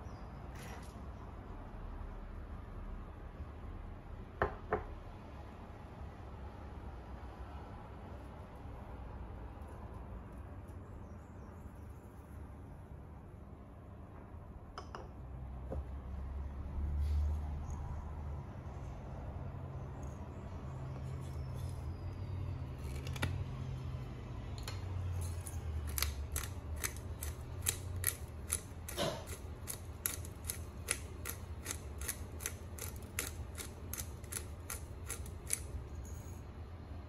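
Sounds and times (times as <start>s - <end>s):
pepper grinder clicking: 24.6s - 35.7s.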